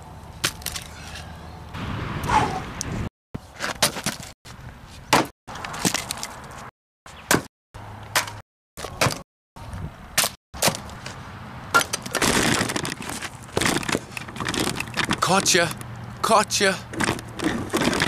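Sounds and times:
maul striking logs: 0:05.1 - 0:06.0, 0:07.3 - 0:07.5.

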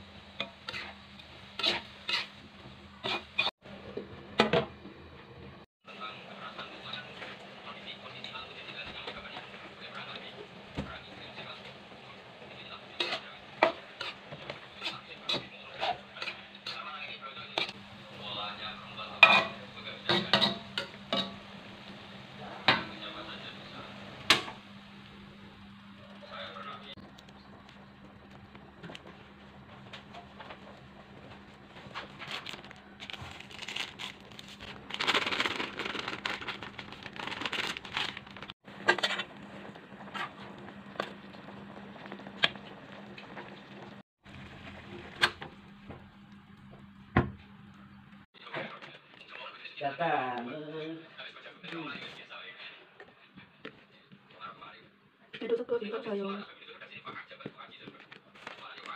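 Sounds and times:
pot boiling with low hum: 0:00.0 - 0:58.9
faint sizzle: 0:05.9 - 0:58.9.

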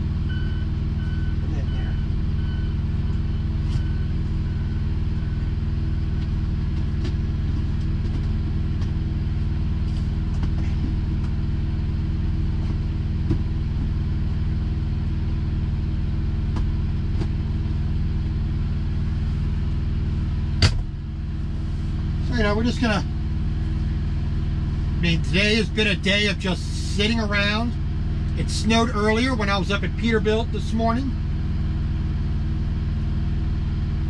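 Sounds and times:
diesel engine idling: 0:00.0 - 0:34.0
backup alarm beeping: 0:00.3 - 0:05.5.

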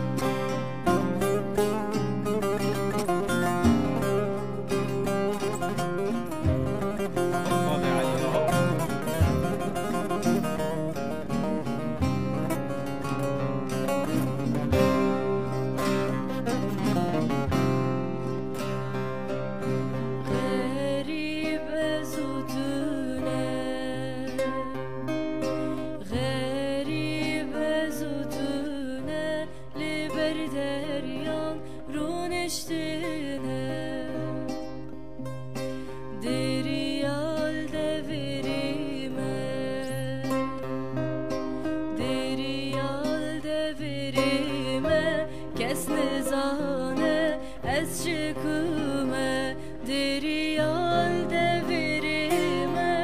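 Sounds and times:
classical guitar: 0:00.0 - 0:53.0
long-necked lute: 0:00.0 - 0:53.0
woman singing slow song: 0:20.2 - 0:34.9, 0:36.0 - 0:40.9, 0:41.8 - 0:53.0.

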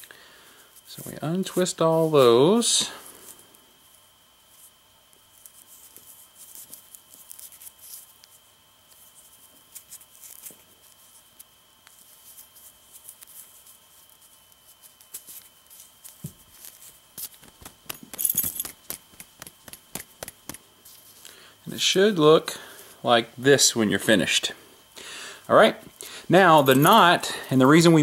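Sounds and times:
rope fibres rustling and crackling: 0:00.6 - 0:17.9.

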